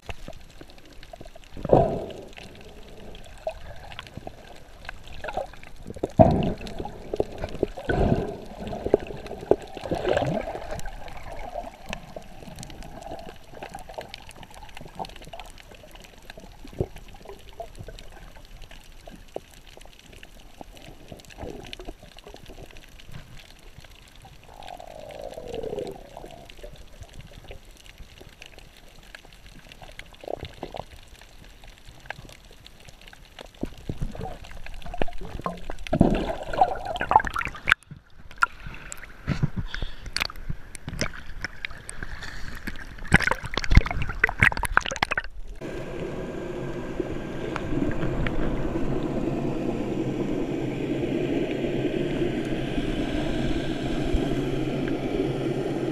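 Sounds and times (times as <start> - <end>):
clicks and crackles: 0.0 - 45.7
underwater bubbling and gurgling: 0.0 - 55.9
droning noise: 45.6 - 55.9.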